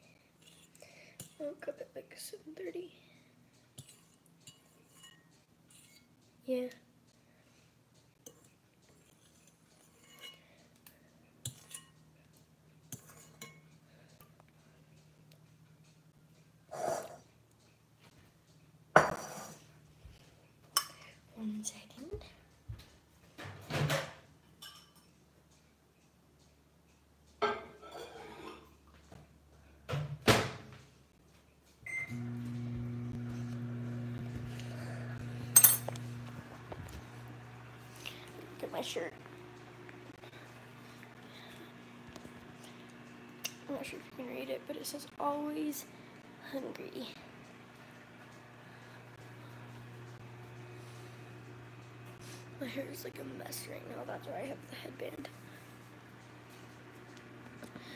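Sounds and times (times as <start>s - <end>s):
microwave oven humming: 31.9s - 57.9s.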